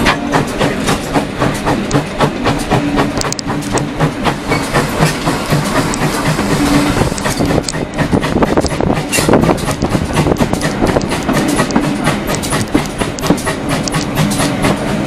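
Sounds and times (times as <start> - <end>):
low hum of moving train: 0.0 - 15.0
train wheels clickety-clack: 0.0 - 15.0.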